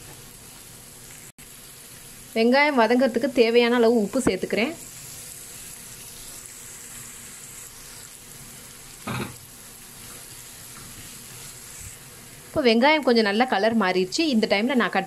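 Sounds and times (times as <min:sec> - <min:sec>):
onions sizzling in oil: 0:00.0 - 0:15.0
spatula stirring in pan: 0:04.3 - 0:12.2.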